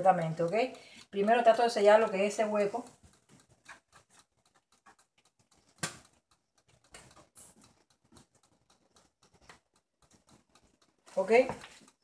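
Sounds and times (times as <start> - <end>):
sharp click: 4.7 - 10.4.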